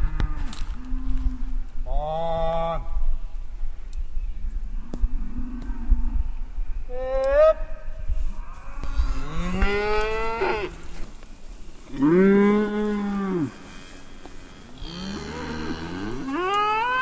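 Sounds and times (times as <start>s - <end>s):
cattle mooing: 8.6s - 10.8s, 14.8s - 17.0s.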